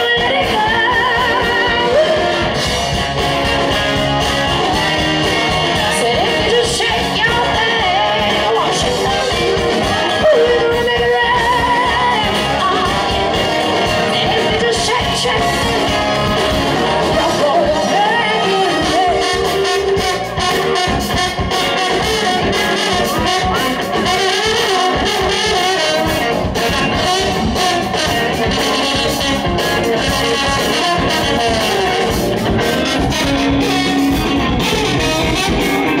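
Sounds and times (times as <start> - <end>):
woman singing: 0.0 - 2.6, 5.3 - 20.0
drums: 0.0 - 36.0
electric guitar: 0.0 - 36.0
saxophone and trumpet horns: 0.0 - 36.0.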